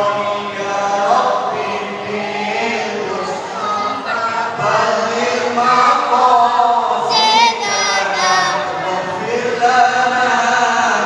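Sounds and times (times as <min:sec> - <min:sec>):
men chanting in unison: 0:00.0 - 0:11.0
single voice chanting: 0:06.9 - 0:09.2.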